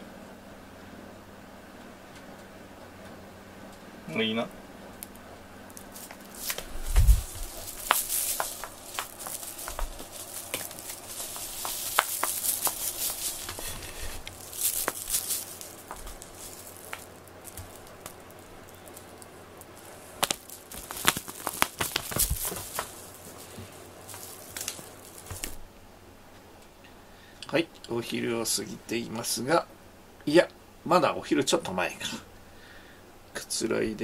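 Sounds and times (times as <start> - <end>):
rustling and clicks of cat toy: 5.7 - 25.6.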